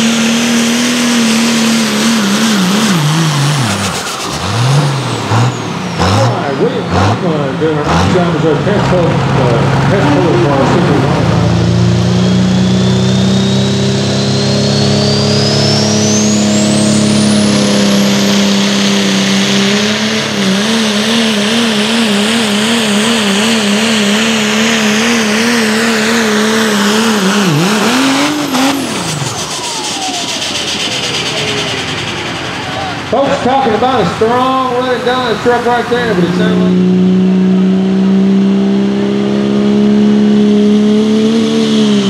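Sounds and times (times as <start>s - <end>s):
truck engine at full throttle: 0.0s - 42.0s
turbo whistle: 12.0s - 18.2s, 27.4s - 33.0s.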